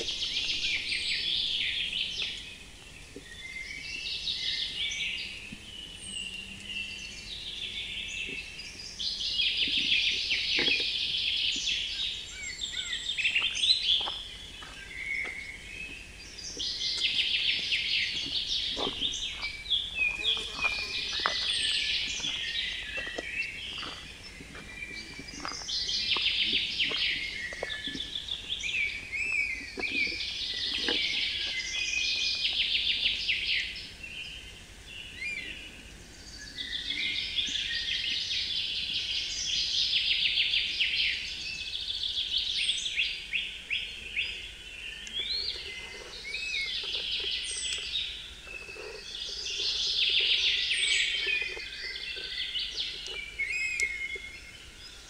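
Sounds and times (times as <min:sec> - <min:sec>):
quieter bird calls: 0:00.0 - 0:55.0
songbirds trilling: 0:00.0 - 0:55.0
footsteps crunching on gravel: 0:12.7 - 0:32.8.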